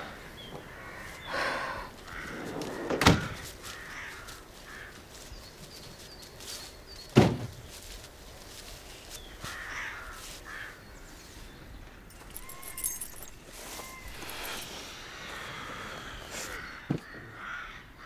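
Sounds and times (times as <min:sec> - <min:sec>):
birds calling: 0:00.0 - 0:18.0.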